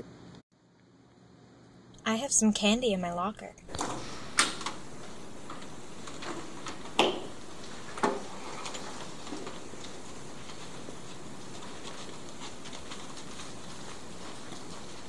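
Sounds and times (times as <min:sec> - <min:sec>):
steady hiss: 0:03.7 - 0:15.0
wooden chair and table knocks: 0:06.9 - 0:07.3.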